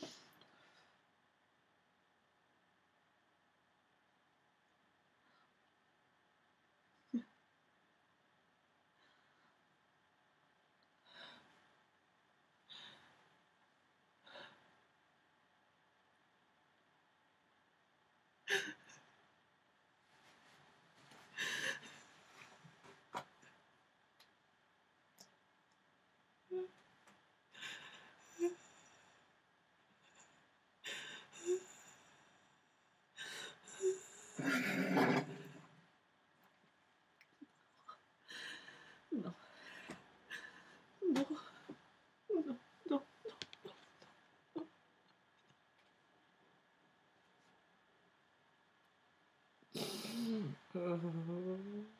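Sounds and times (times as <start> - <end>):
woman sobbing: 49.8 - 51.9.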